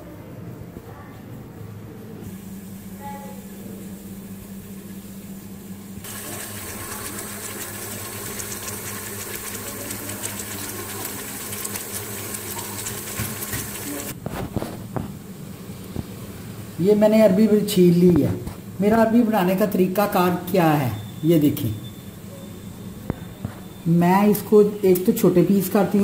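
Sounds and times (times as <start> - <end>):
onions sizzling in hot oil: 6.0 - 14.1.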